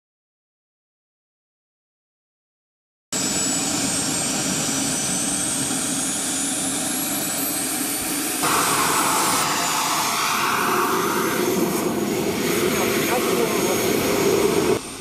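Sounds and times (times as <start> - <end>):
small turbine engine whine: 3.2 - 15.0.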